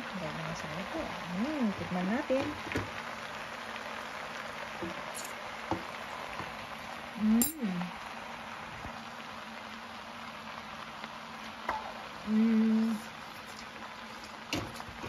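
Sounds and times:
noodles sizzling in a pan: 0.0 - 15.0
person humming: 12.3 - 13.0.

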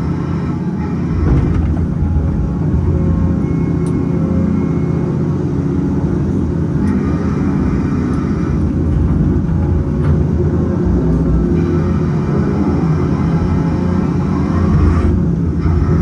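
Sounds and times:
diesel engine under hydraulic load: 0.0 - 16.0.

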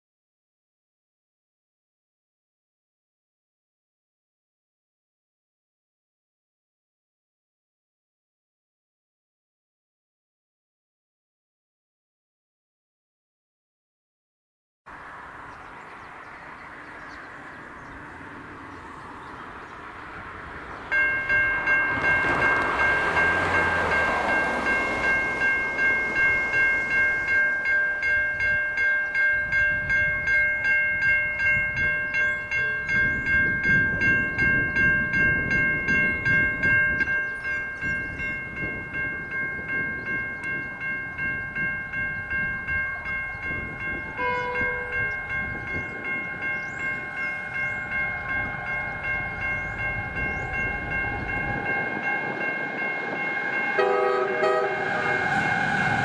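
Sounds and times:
level crossing bells ringing: 20.8 - 56.0.

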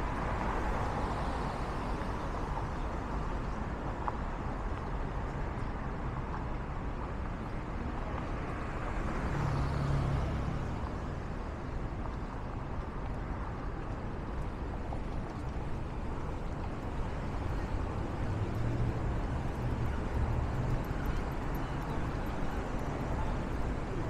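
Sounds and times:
traffic road noise: 0.0 - 24.0
car passing: 8.6 - 10.9.

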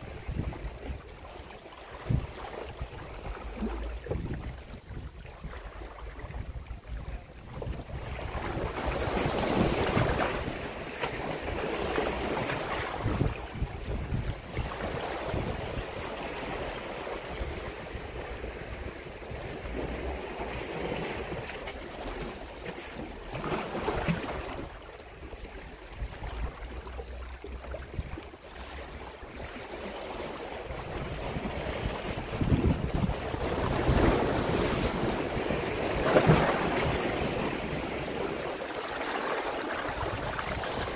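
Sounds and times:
wind buffeting microphone: 0.0 - 1.2, 2.0 - 10.6, 12.7 - 16.0, 30.7 - 37.2
waves washing against rocks: 0.0 - 24.8, 28.0 - 40.9.

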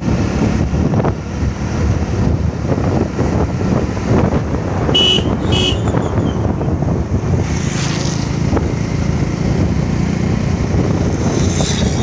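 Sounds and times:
vehicle engine and road noise: 0.0 - 12.0
short high horn beeps: 5.0 - 6.4.

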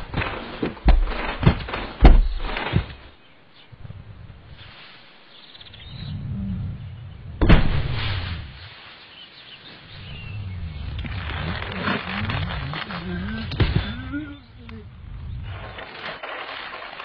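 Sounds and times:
faint birdsong: 2.0 - 16.1
low moaning: 5.7 - 7.5, 9.9 - 16.1
heavy thud: 7.4 - 8.4.

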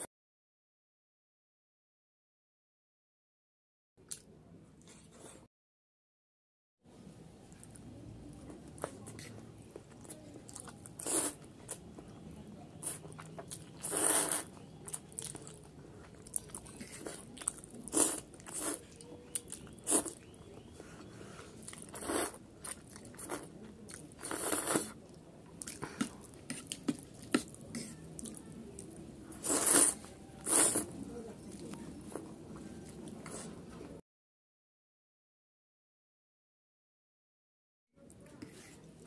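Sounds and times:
noodle slurping: 13.8 - 14.6, 19.8 - 20.3, 21.7 - 23.4, 29.4 - 30.9.

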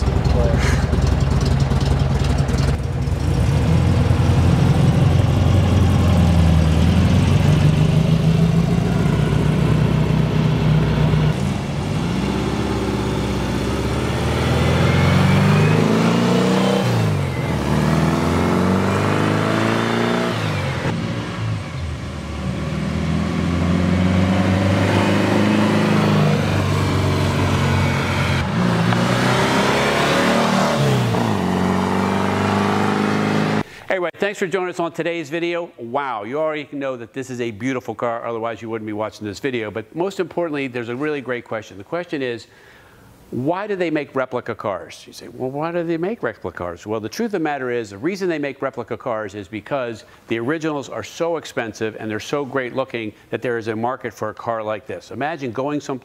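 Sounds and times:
car engine accelerating: 0.0 - 33.7.

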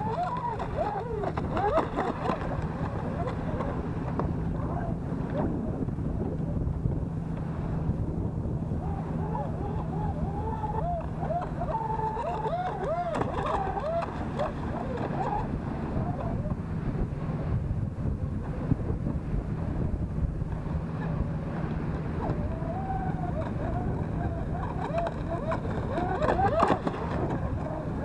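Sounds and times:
electric motors whining: 0.0 - 5.6, 8.5 - 16.5
wind on microphone: 0.0 - 28.0.

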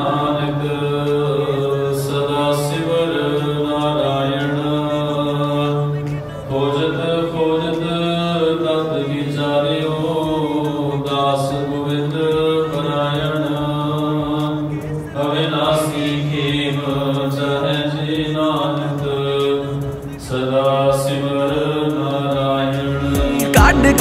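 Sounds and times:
gliding melody: 21.4 - 24.0.

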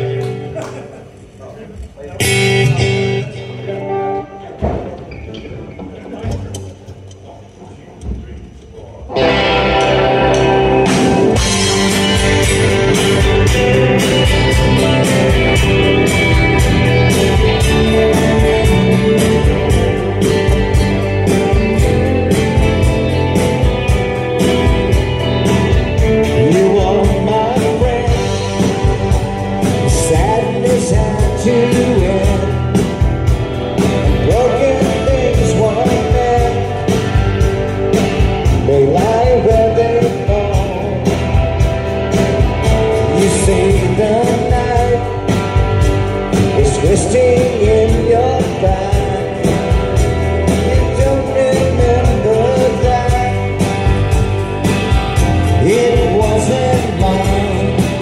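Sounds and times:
electric guitars: 0.0 - 7.2, 8.9 - 58.0
steady drum beat: 9.2 - 58.0
man singing: 25.9 - 41.7, 42.4 - 54.0, 55.2 - 58.0.

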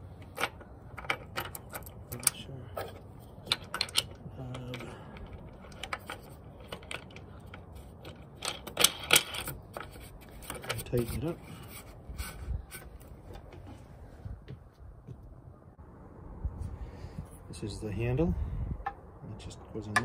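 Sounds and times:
small metal and plastic parts clicking: 0.2 - 10.8.

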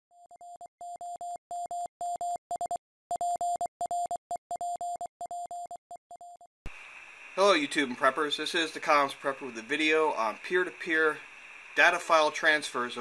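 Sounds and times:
morse code beeps: 0.2 - 6.5.

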